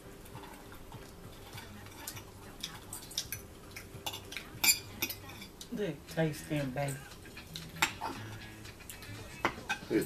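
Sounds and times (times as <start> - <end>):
forks clicking on plates: 0.3 - 6.2.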